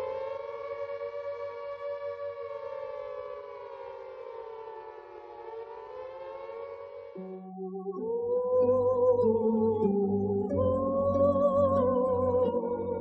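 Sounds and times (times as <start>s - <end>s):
air-raid siren wavering: 0.0s - 7.6s.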